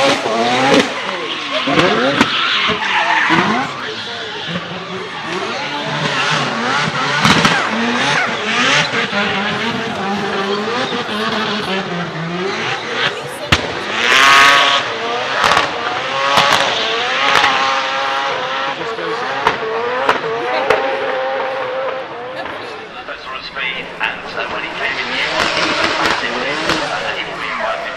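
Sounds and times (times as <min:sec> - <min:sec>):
rotary engine revving hard: 0:00.0 - 0:27.9
sharp exhaust cracks: 0:23.0 - 0:27.9.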